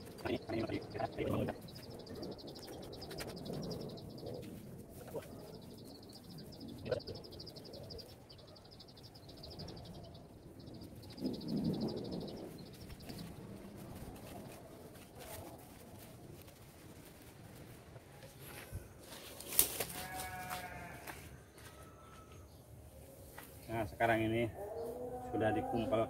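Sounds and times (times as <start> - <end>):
high fast-pulsing animal trill: 6.7 - 8.0
fibre rustling and scraping: 13.2 - 21.3.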